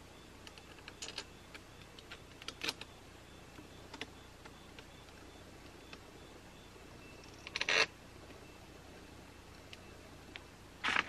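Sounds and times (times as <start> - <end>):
metal terminals clicking and clinking: 0.4 - 2.9.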